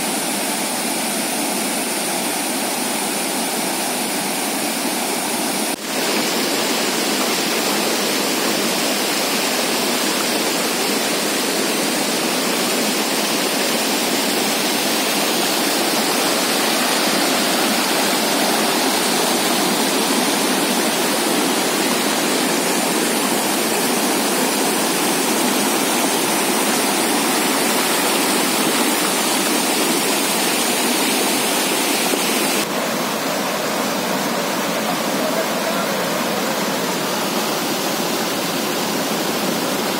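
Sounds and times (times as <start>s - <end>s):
floodwater rushing: 0.0s - 39.9s.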